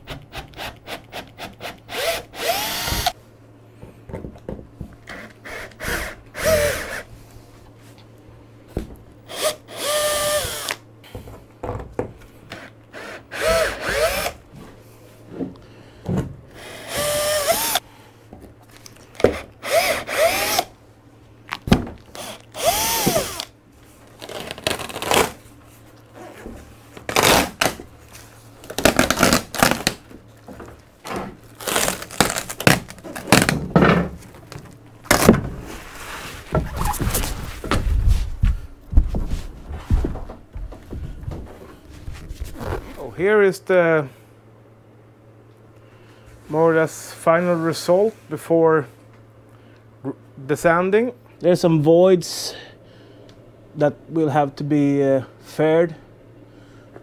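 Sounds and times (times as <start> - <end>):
cordless drill drilling: 1.9 - 3.1, 5.1 - 7.0, 9.3 - 10.8, 13.0 - 14.4, 16.6 - 17.8, 19.6 - 20.7, 22.1 - 23.5.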